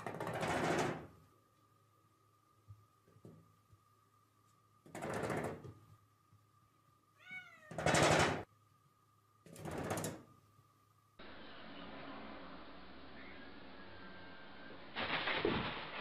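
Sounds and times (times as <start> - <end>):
cat calling loudly: 7.2 - 7.8.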